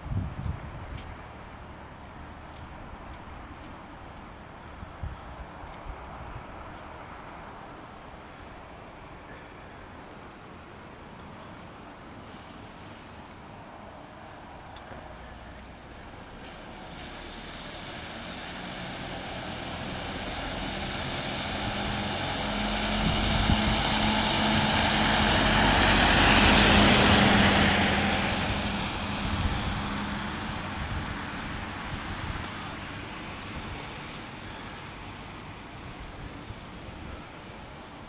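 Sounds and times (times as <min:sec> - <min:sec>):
passing vehicle engine hum: 0:10.8 - 0:38.0.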